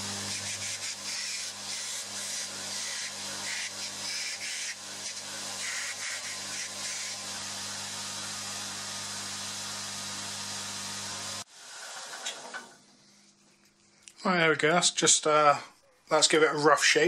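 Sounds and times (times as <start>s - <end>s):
belt grinder motor hum: 0.0s - 11.4s.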